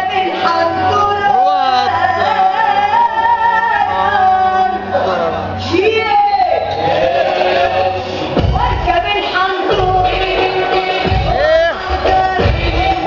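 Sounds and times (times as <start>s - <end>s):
loud dance music: 0.0s - 13.0s
person singing: 0.0s - 13.0s
steady bass: 0.0s - 13.0s.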